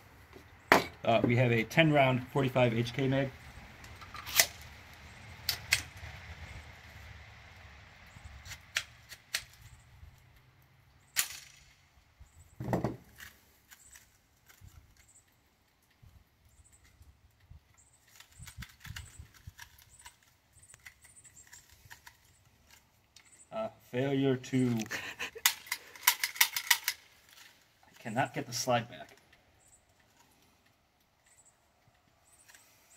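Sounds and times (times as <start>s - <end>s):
pistol slide metallic clacks: 25.4s - 27.0s
gritty ticking of pistol slide: 25.4s - 27.1s.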